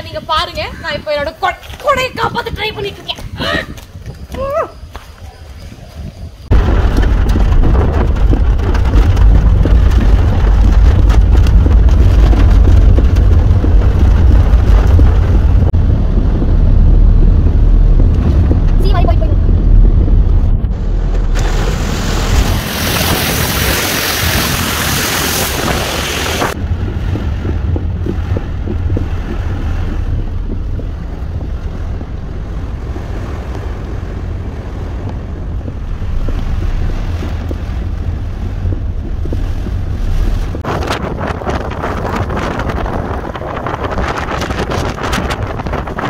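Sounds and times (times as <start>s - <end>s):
wind gusts on microphone: 0.0s - 46.0s
car rumble: 6.4s - 46.0s
rain hissing: 6.5s - 19.7s, 20.7s - 40.7s.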